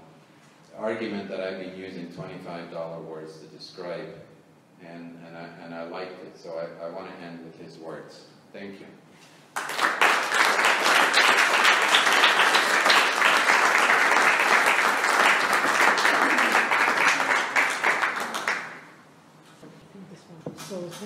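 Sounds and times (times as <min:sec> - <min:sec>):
audience applauding: 0:09.6 - 0:19.0.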